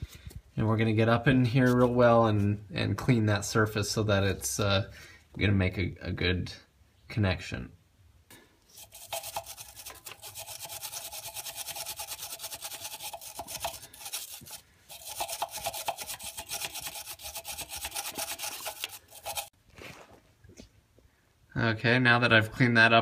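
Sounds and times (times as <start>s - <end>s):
wire brush scrubbing steel: 8.7s - 19.6s.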